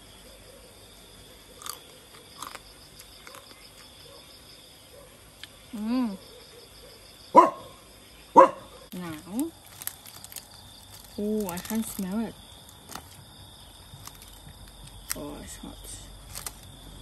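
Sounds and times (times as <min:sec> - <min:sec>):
dog barking: 0:04.9 - 0:05.2, 0:06.3 - 0:08.9.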